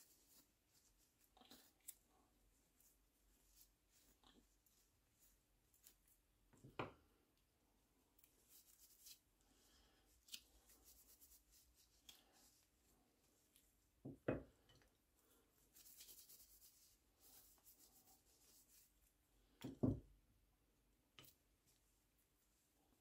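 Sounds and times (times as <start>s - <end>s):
cloth rubbing on wood: 15.8s - 19.0s.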